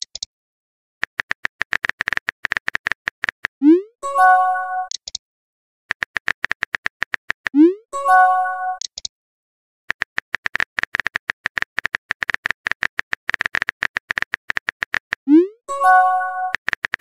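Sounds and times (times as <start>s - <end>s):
phone keyboard typing clicks: 1.0s - 3.6s, 5.9s - 7.6s, 8.8s - 9.1s, 9.9s - 15.3s, 15.9s - 17.0s
multi-tone notification chime: 4.0s - 4.9s, 7.7s - 8.8s, 15.7s - 16.5s.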